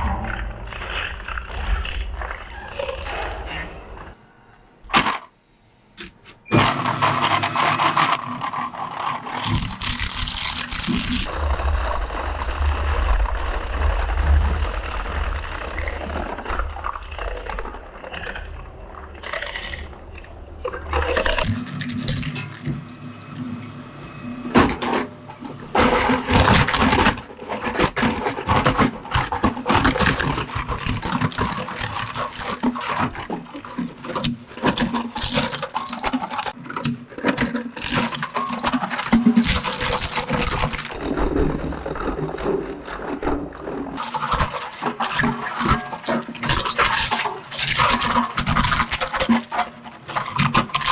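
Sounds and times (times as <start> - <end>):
shredder cracking and snapping: 6.5 - 11.3, 24.6 - 43.4, 44.0 - 50.9.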